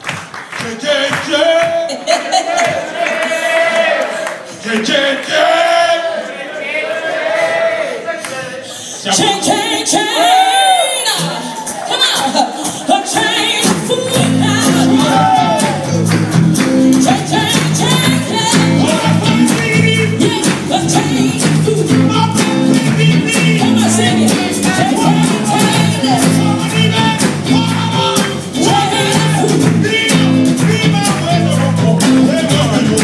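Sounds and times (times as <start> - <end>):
people singing: 0.6 - 16.2, 17.0 - 33.0
drums: 8.8 - 33.0
electric guitars: 10.3 - 33.0
bass notes: 13.4 - 33.0.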